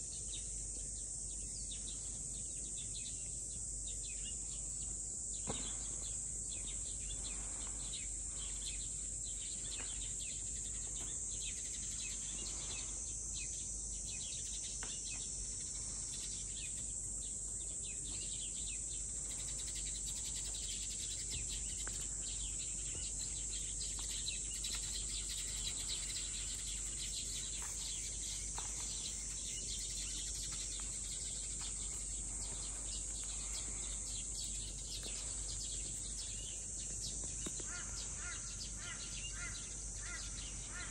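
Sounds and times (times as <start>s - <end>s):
insects droning: 0.0s - 40.9s.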